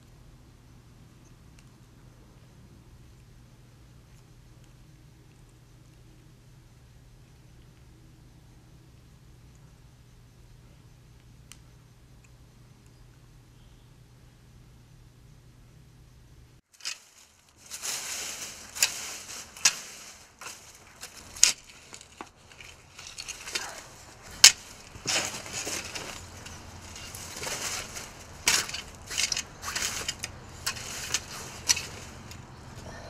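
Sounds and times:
dry leaves being scraped: 0:16.7 - 0:32.6.

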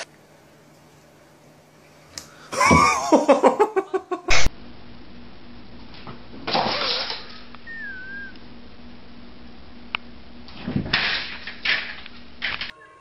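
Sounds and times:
click: 0:02.1 - 0:02.3
person laughing: 0:02.5 - 0:04.5
thin wavering squeak: 0:07.7 - 0:08.4.

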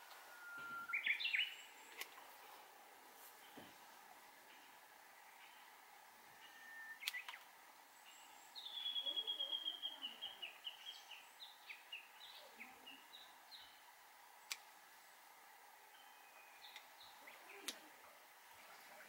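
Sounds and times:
songbird trilling and chirping: 0:00.3 - 0:02.2, 0:04.5 - 0:07.4, 0:08.0 - 0:13.9, 0:15.9 - 0:17.8
pruning shears snipping: 0:07.0 - 0:07.5, 0:14.4 - 0:14.7.

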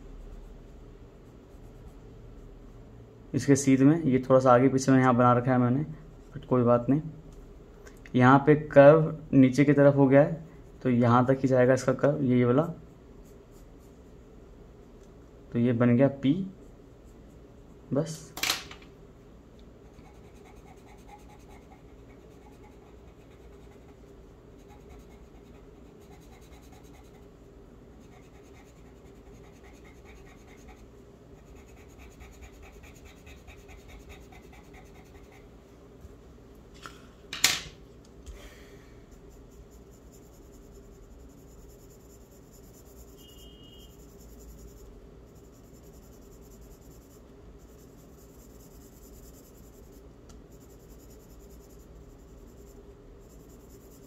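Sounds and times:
pencil scratching on paper: 0:19.8 - 0:27.3, 0:27.9 - 0:35.5, 0:39.1 - 0:54.0.

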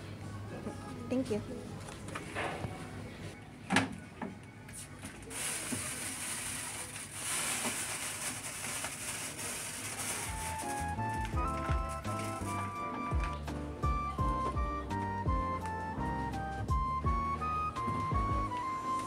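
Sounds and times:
rice grains pouring hiss: 0:05.3 - 0:10.6.

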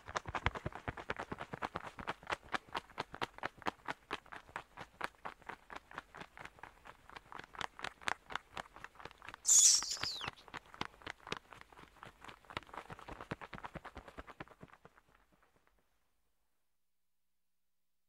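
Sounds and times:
cartoon wing flaps: 0:09.5 - 0:10.3
high shrill squeal: 0:09.5 - 0:10.3.

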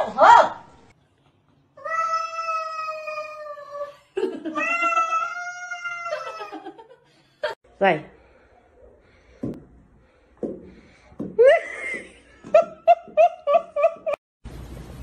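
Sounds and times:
person laughing high-pitched: 0:03.8 - 0:06.9.

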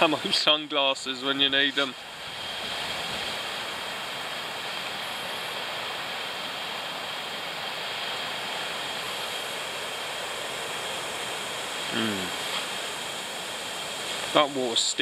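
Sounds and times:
strong wind blowing: 0:01.4 - 0:06.6.

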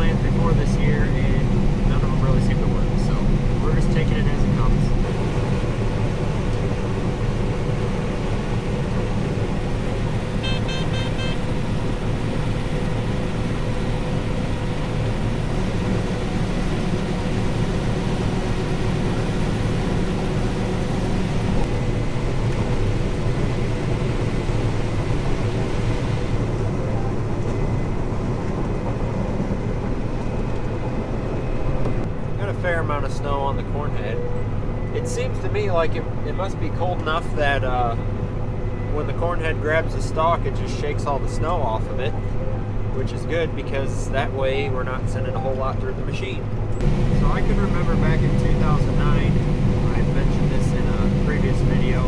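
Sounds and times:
combine harvester drone: 0:00.0 - 0:52.0
beeps: 0:10.4 - 0:11.4.

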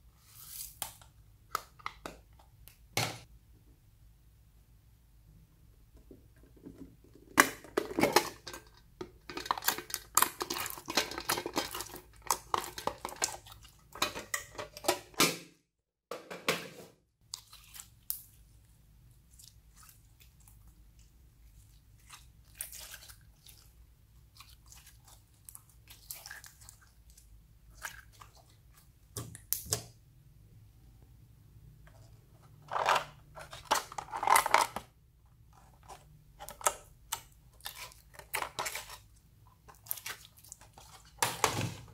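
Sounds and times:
slime squelching: 0:09.2 - 0:14.2, 0:17.2 - 0:29.6, 0:35.0 - 0:41.2
plastic pencil case clatter: 0:32.6 - 0:34.9.

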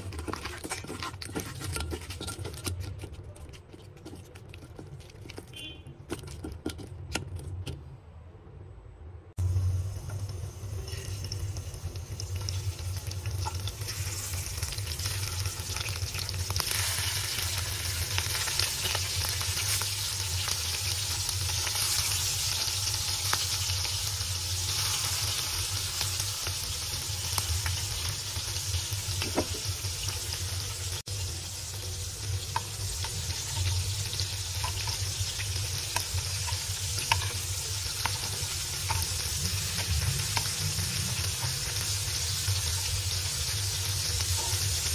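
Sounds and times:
spatula stirring in pan: 0:00.0 - 0:07.7, 0:31.6 - 0:44.9
prawns sizzling in hot oil: 0:09.4 - 0:44.9.

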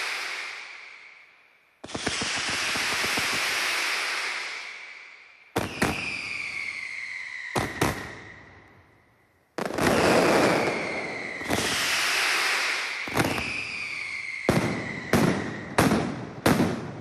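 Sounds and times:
firecracker barrage: 0:00.0 - 0:09.0, 0:09.6 - 0:17.0
falling whistle: 0:02.0 - 0:09.0, 0:10.1 - 0:15.8.

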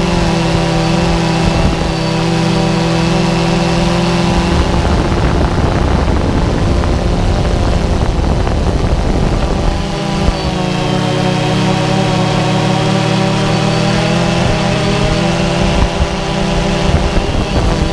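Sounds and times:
electric motor and propeller humming: 0:00.0 - 0:17.9.

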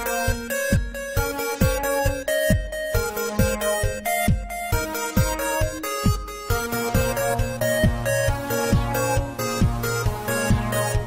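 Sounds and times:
held synth notes: 0:00.0 - 0:11.0
deep drum beat: 0:06.1 - 0:11.0.

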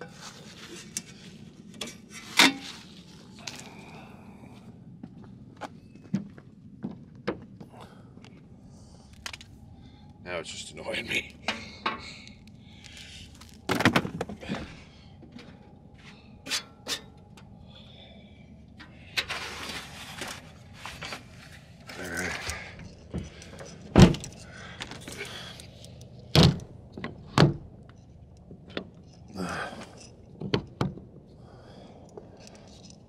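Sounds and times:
gear rustling: 0:11.3 - 0:30.4.

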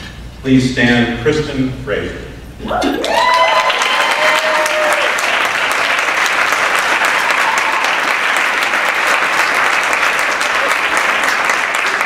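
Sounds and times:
crowd applauding: 0:02.9 - 0:12.0.

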